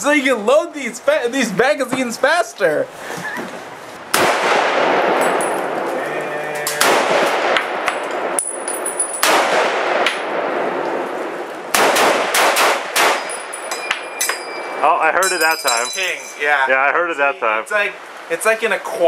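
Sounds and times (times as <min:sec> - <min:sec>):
rifle shots with long echo: 0:04.1 - 0:05.8, 0:06.8 - 0:08.4, 0:09.2 - 0:13.5.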